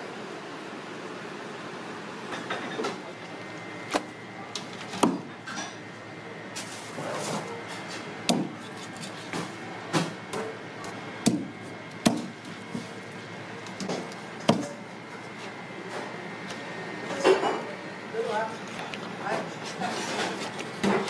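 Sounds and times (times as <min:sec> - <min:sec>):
knife chopping on wooden block: 0:08.3 - 0:08.9.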